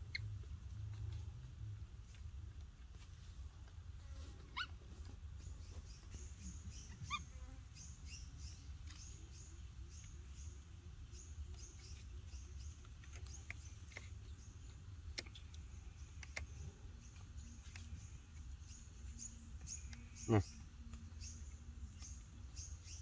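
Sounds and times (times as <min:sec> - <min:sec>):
baby monkey squeaking: 0:04.5 - 0:04.7, 0:06.7 - 0:07.3.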